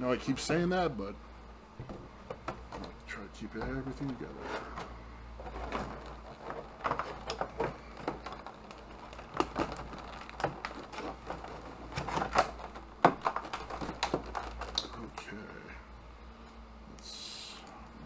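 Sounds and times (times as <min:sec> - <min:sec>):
plastic packaging crinkling: 0:03.8 - 0:15.2.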